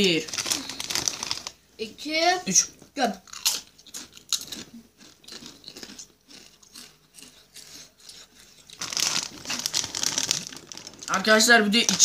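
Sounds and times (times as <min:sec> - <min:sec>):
chips being chewed: 0:00.1 - 0:01.6, 0:03.2 - 0:11.2.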